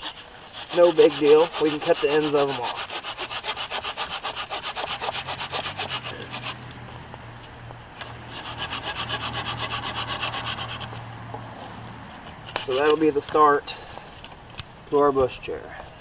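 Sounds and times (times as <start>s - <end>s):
hand saw cutting wood: 0.0s - 6.7s, 8.0s - 11.1s, 11.7s - 13.4s.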